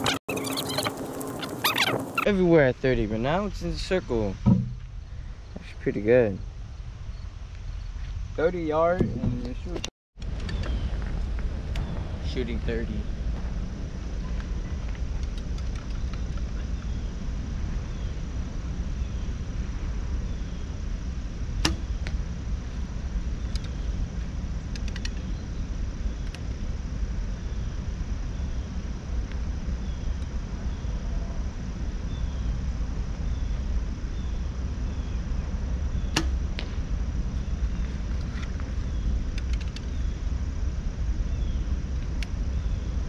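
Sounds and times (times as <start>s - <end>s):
arrow knock: 4.4s - 4.8s, 21.6s - 21.9s, 36.1s - 36.8s
bow string snapping: 36.1s - 36.7s.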